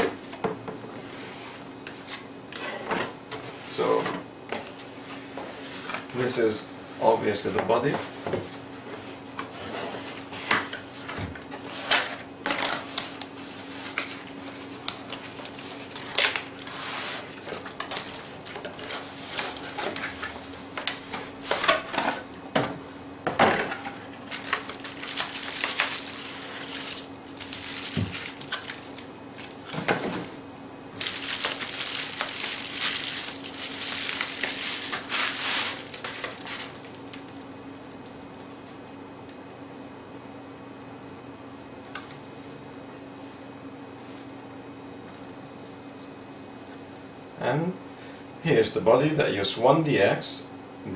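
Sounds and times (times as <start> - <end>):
plastic bag crinkling: 14.1 - 20.1, 24.2 - 29.8, 30.9 - 37.4.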